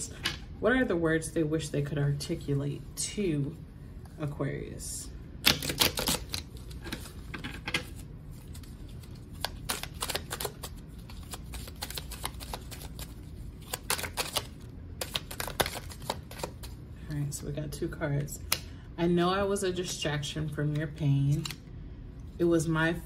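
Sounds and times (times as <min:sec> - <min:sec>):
cards being shuffled: 0:05.4 - 0:16.8.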